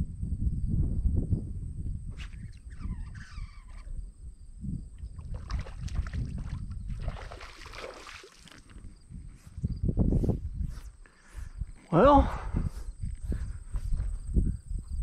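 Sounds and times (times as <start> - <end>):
water splashing and swirling: 5.0 - 9.0.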